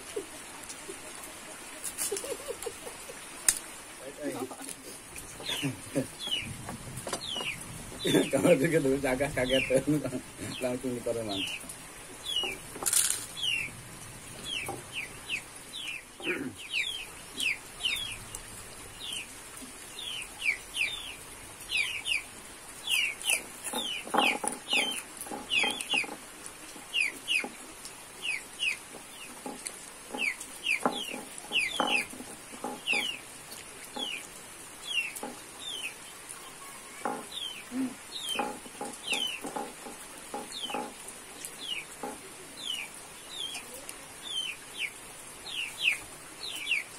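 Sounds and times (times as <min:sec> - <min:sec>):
chickens clucking: 0:00.0 - 0:13.7, 0:20.0 - 0:44.9
chicks peeping: 0:04.6 - 0:08.5, 0:10.5 - 0:11.6, 0:12.2 - 0:12.6, 0:14.4 - 0:18.4, 0:20.0 - 0:26.2, 0:26.9 - 0:27.5, 0:28.2 - 0:33.2, 0:33.9 - 0:36.0, 0:36.6 - 0:46.9.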